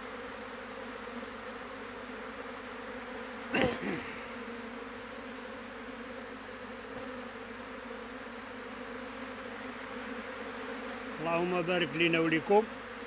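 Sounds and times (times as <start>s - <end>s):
bee swarm buzzing: 0.0s - 13.0s
loud buzz falling in pitch: 3.5s - 4.8s.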